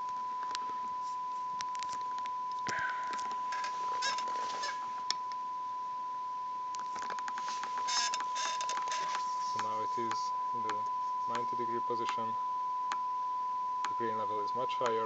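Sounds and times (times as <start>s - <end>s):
steady test tone from loudspeaker: 0.0s - 15.0s
brief rustles: 6.9s - 10.2s.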